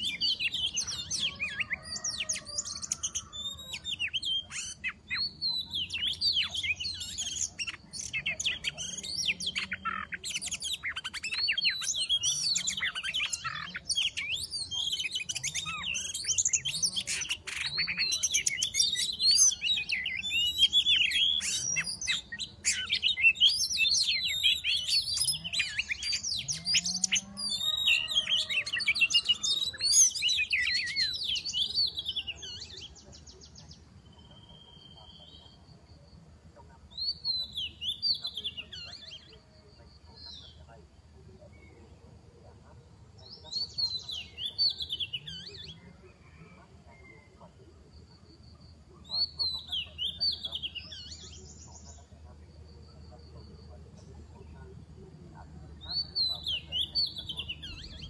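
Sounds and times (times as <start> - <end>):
bird singing whistles and chirps: 55.8 - 58.0.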